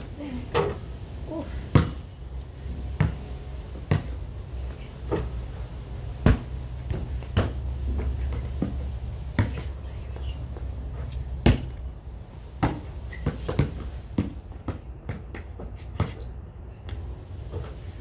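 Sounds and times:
basketball hitting backboard and rim: 1.7s - 2.0s, 2.9s - 4.2s, 6.2s - 8.8s, 11.4s - 11.8s, 12.6s - 15.2s
basketball bouncing on concrete: 1.7s - 2.1s, 2.7s - 4.2s, 5.0s - 9.8s, 10.5s - 11.8s, 12.6s - 17.0s.

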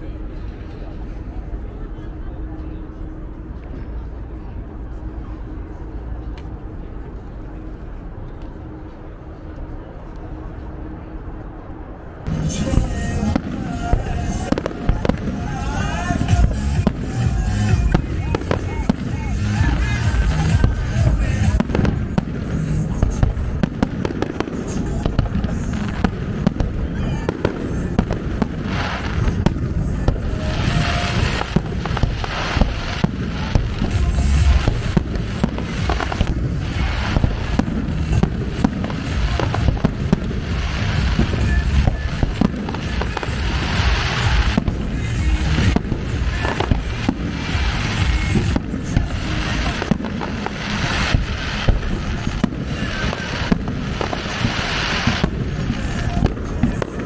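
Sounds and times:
low rumble: 0.0s - 57.0s
crackling firework stars: 12.2s - 57.0s.

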